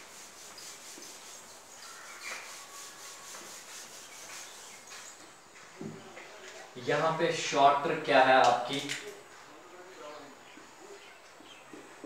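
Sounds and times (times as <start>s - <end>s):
eraser rubbing on whiteboard: 0.0s - 5.1s.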